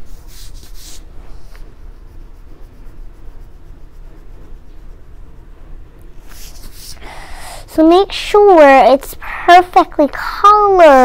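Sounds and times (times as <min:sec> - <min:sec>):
oil pastel scribbling on paper: 0:00.0 - 0:05.5, 0:06.2 - 0:07.0
low steady rumble: 0:00.0 - 0:11.0.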